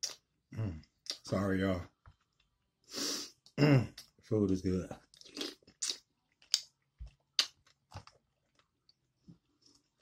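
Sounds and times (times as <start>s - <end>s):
person chewing food: 5.0s - 10.0s.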